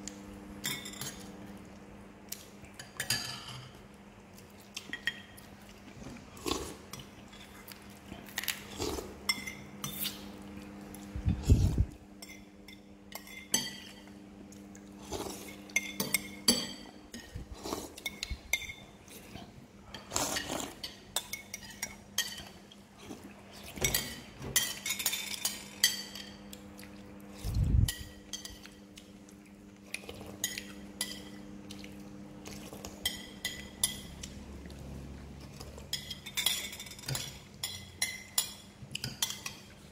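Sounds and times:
faint steady hum: 0.0s - 39.9s
spoons clinking on ceramic bowls: 2.8s - 3.8s, 12.2s - 14.1s, 15.5s - 17.4s, 23.8s - 26.5s, 30.4s - 31.5s, 33.0s - 34.2s, 35.9s - 39.7s.

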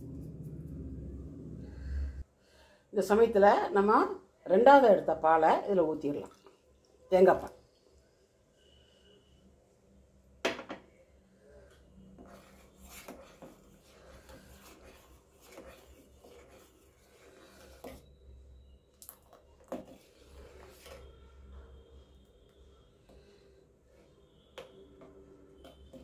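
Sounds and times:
ladle scraping and clinking in pot: 12.2s - 18.1s.

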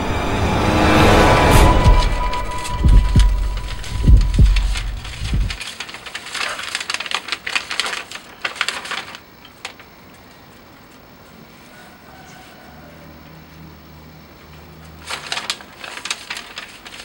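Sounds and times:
low booming: 0.0s - 5.6s
paper rustling and crackling: 1.5s - 11.0s, 14.8s - 17.0s.

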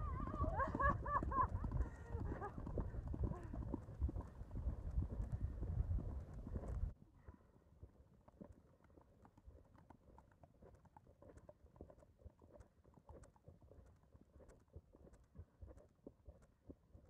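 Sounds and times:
horse hoofbeats on pavement: 0.1s - 6.9s.

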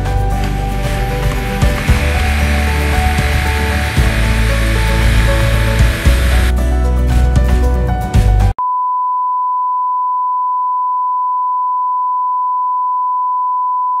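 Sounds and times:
background music: 0.0s - 8.6s.

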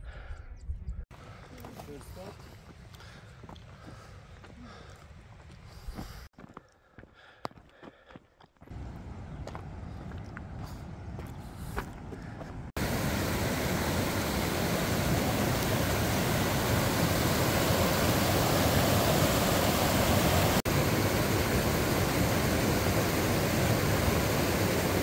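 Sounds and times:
stream rushing over rocks: 12.8s - 25.0s.

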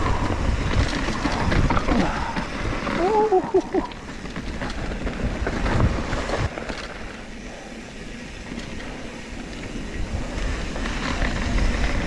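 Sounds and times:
wind on microphone: 0.0s - 6.5s
bike clicking and rattling: 0.0s - 12.0s
bike tyres rolling over gravel: 0.0s - 12.0s.

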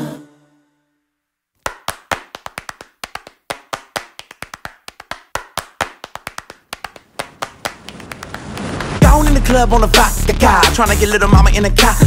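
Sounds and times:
dry hand claps: 1.6s - 9.0s.

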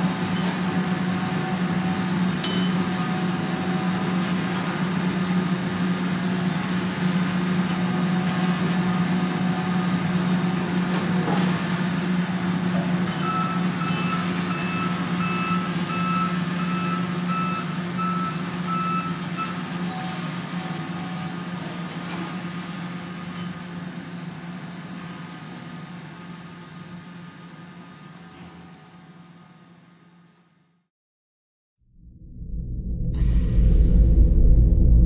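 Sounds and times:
diesel excavator engine running: 0.0s - 30.2s
back-up alarm beeping: 13.2s - 20.2s.

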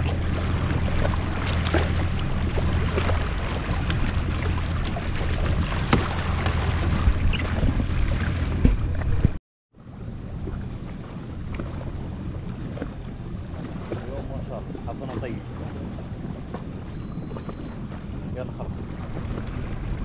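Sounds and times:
jet ski engine humming: 0.0s - 20.0s
wind and water noise: 0.0s - 20.0s.

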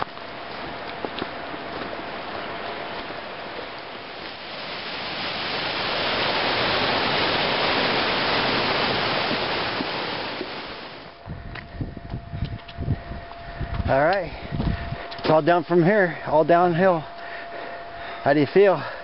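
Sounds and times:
rushing creek water: 0.0s - 11.2s.

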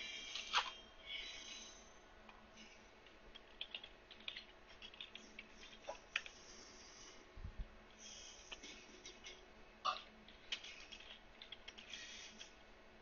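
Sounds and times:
typing on computer keyboard: 3.3s - 5.5s.

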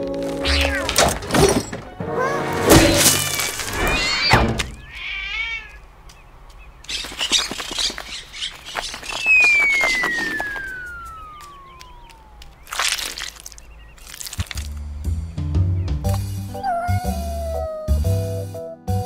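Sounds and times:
comedy thunk: 0.8s - 3.2s
birds chirping: 3.1s - 17.8s
wings flapping: 6.5s - 14.8s
whistle falling in pitch: 9.2s - 11.6s.

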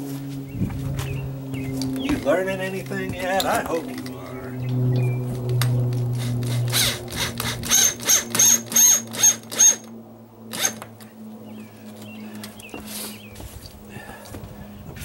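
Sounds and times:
electric drill driving screws: 5.6s - 9.9s, 10.5s - 10.9s.

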